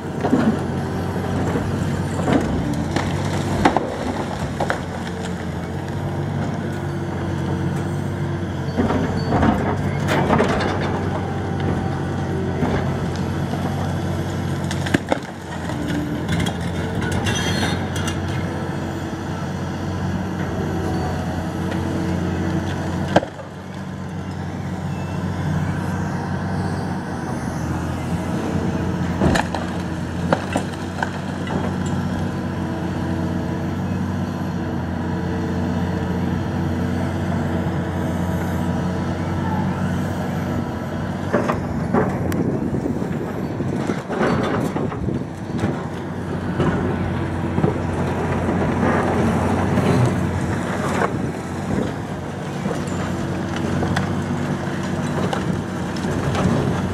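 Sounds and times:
excavator diesel engine running: 0.0 - 56.9
concrete cracking and crashing: 1.4 - 6.0, 12.5 - 18.4, 29.1 - 32.1, 47.5 - 56.9.

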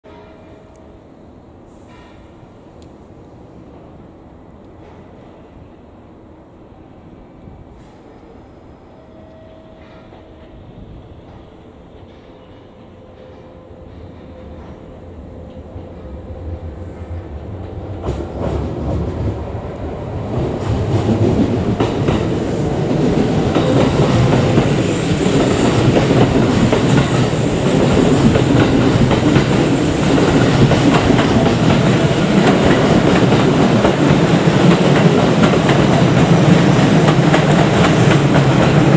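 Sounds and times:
electric train rumbling past: 0.1 - 38.9
train wheels clacking over rail joints: 20.4 - 38.9.

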